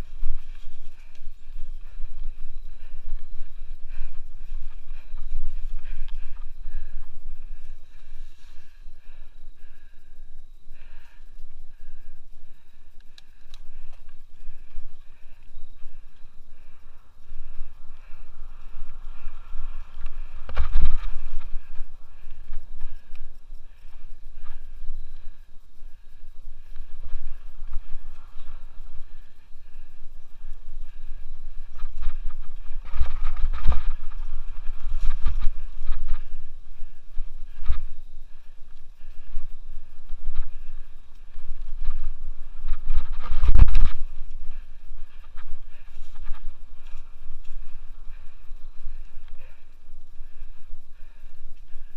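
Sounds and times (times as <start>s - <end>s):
bike tyre noise: 0.0s - 10.1s, 10.7s - 51.9s
wind buffeting microphone: 13.4s - 51.9s.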